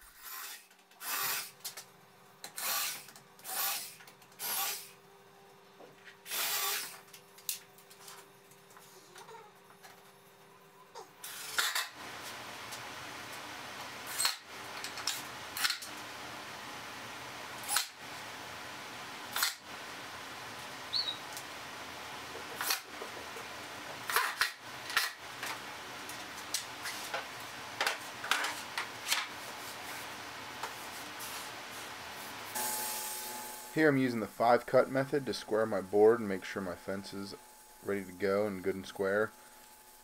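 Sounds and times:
steady hiss: 29.5s - 40.0s.

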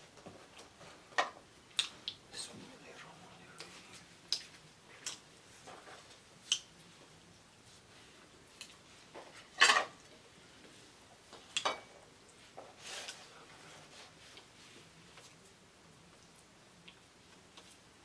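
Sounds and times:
plates and food clinking: 9.2s - 10.0s, 11.6s - 12.0s.

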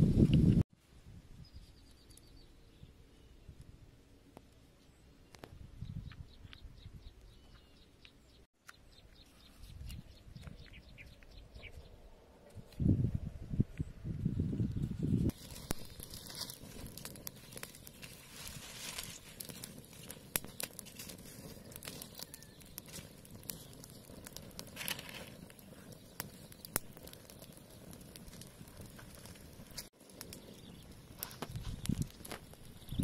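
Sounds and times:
twig fire crackling: 13.7s - 33.0s
sharp pops from fire: 15.2s - 33.0s.

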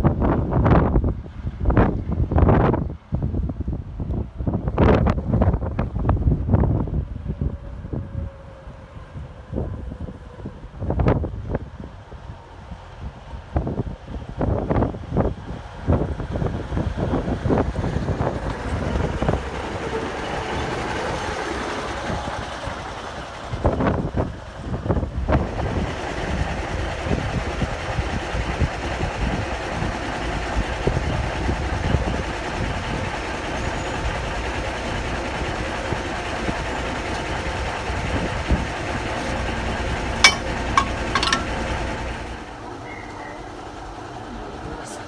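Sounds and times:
diesel locomotive engine rumble: 0.0s - 45.0s
sharp metallic clank: 40.2s - 41.6s.

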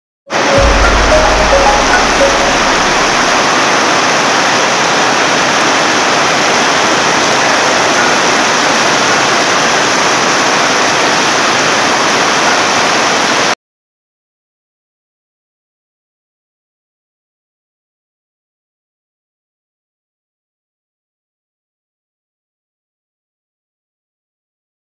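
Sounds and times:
heavy rain pouring: 0.3s - 13.6s.

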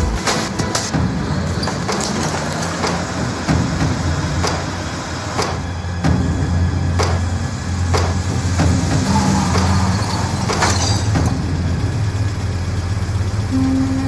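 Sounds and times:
off-road vehicle engine running: 0.0s - 14.0s
sharp knocks: 7.0s - 7.3s, 7.9s - 8.2s.

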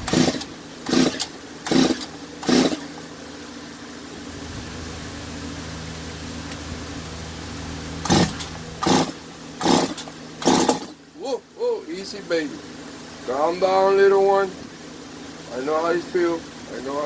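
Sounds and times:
chainsaw starter rope pulls: 0.0s - 2.9s, 8.0s - 11.0s.

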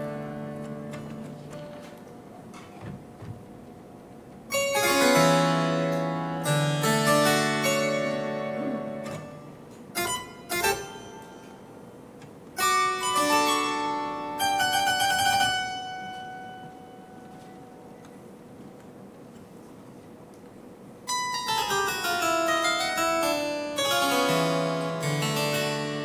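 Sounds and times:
harpsichord playing: 0.0s - 1.8s, 4.5s - 11.9s, 12.6s - 17.4s, 21.1s - 26.0s.

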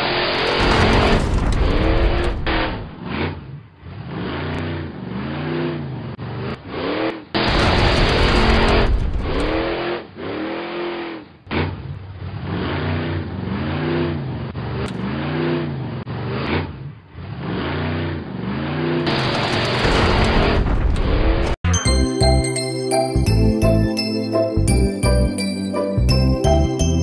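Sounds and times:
truck engine revving: 0.0s - 21.6s.

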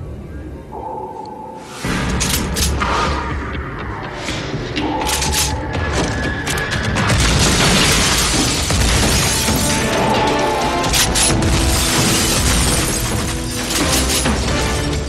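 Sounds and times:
film score music: 0.0s - 15.0s
bullets hitting metal: 10.8s - 14.9s.

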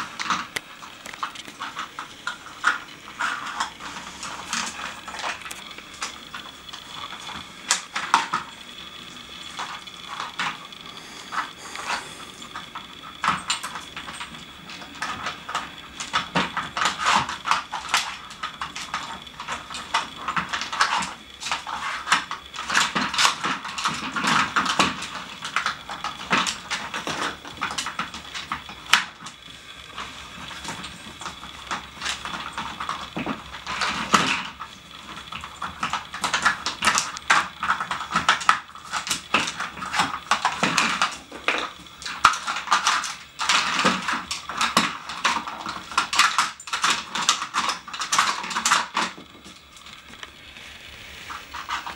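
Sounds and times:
plastic pieces clattering: 29.9s - 51.9s.

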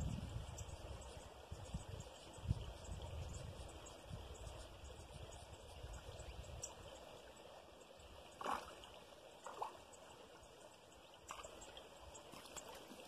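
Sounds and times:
faint water sounds: 0.0s - 13.0s
short water splashes: 8.2s - 10.1s, 11.1s - 13.0s.

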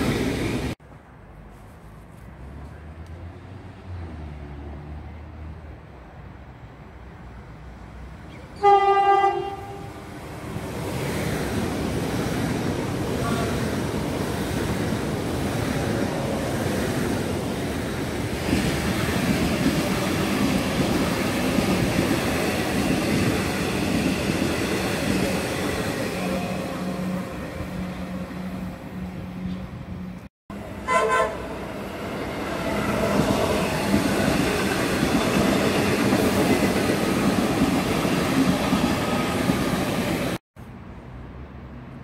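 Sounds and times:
train horn blast: 8.6s - 10.1s, 30.8s - 31.6s
train wheels rumbling on rail: 8.6s - 40.4s.

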